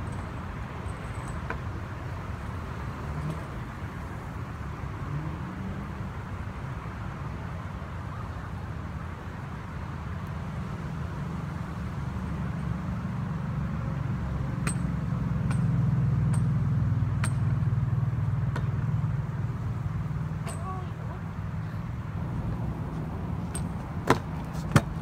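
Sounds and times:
steady low rumble: 14.7s - 25.0s.

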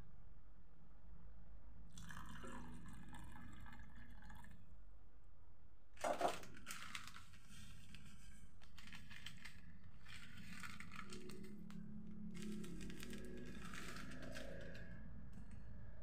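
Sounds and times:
small clicks and scrapes: 6.0s - 15.6s.

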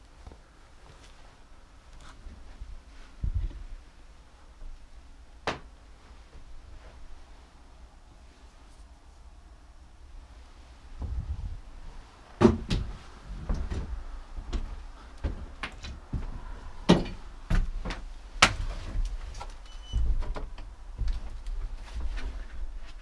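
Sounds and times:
wooden knocks and thumps: 12.4s - 19.1s.

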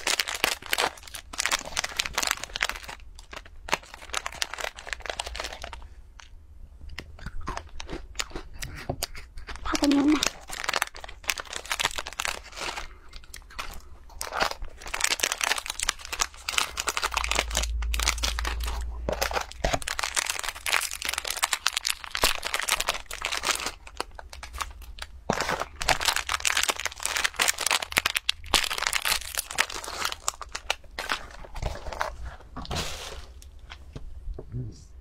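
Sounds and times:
plastic packets crinkling and tearing: 0.0s - 6.3s, 9.6s - 33.8s
biscuits shaken out: 9.7s - 12.8s
low handling rumble: 17.0s - 20.0s.

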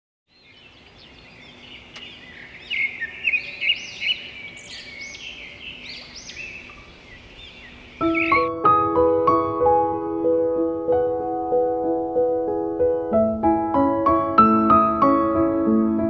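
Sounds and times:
small birds chirping: 0.3s - 8.5s
piano music: 8.0s - 16.0s.

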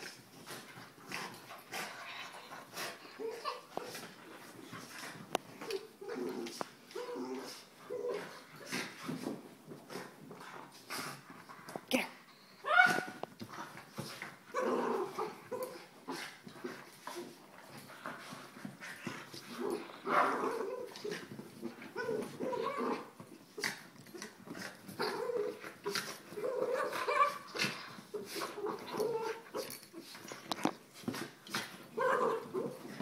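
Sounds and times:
dogs yipping and whimpering: 1.9s - 4.1s, 19.9s - 23.7s, 24.9s - 30.1s.

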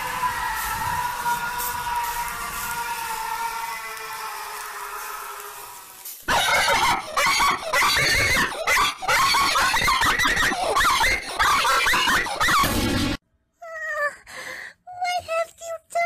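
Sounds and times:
cartoon voice squealing: 6.3s - 12.8s.

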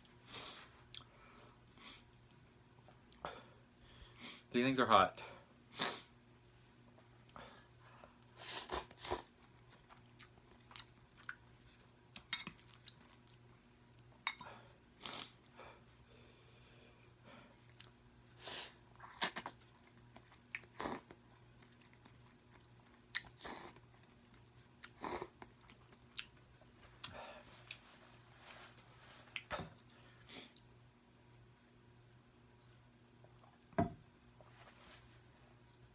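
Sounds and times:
wet chewing and mouth noises: 8.1s - 14.1s, 17.6s - 27.9s, 29.2s - 31.8s.

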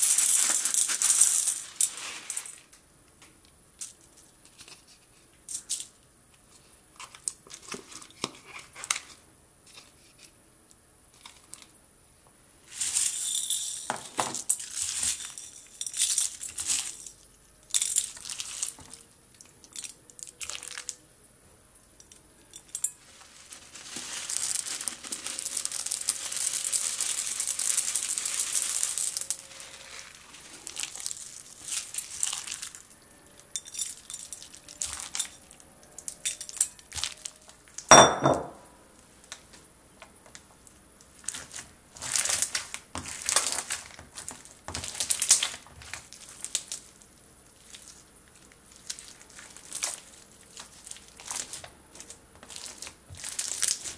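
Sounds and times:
crunchy slime crackling: 23.0s - 37.9s, 41.0s - 53.9s.

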